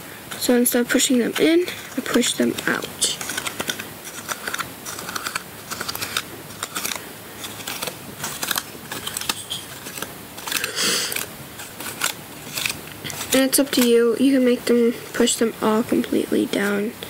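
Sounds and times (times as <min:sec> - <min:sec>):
cardboard rustle: 0:01.4 - 0:14.0.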